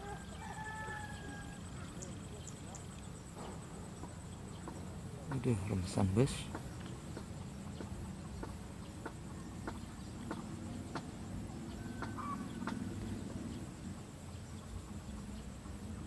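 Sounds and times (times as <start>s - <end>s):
chickens clucking: 0.0s - 16.0s
low steady hum: 0.0s - 16.0s
higher bird call: 11.6s - 13.6s.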